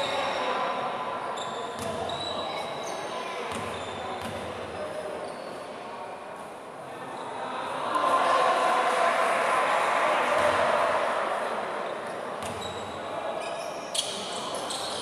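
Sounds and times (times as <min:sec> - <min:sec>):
shoes squeaking: 0:13.4 - 0:15.0.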